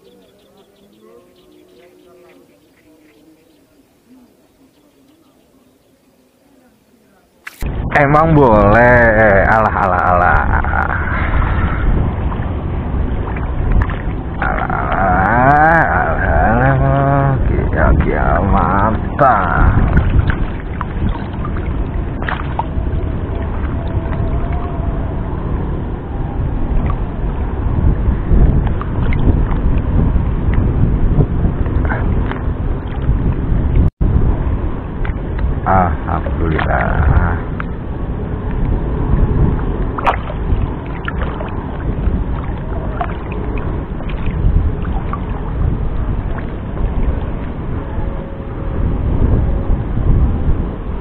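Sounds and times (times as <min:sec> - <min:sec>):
wind buffeting microphone: 0:07.6 - 0:51.0
water lapping and sloshing: 0:10.5 - 0:15.3, 0:17.4 - 0:27.6, 0:28.4 - 0:33.8, 0:36.2 - 0:48.8
small splashes: 0:13.2 - 0:15.2, 0:19.2 - 0:24.7, 0:39.6 - 0:47.6.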